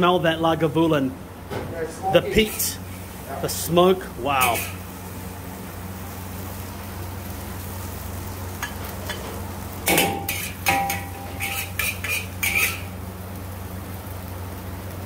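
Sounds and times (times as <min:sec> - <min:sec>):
steady low hum: 0:00.0 - 0:15.0
spatula scraping and clanking wok: 0:02.4 - 0:02.8, 0:04.4 - 0:04.8, 0:08.6 - 0:13.0.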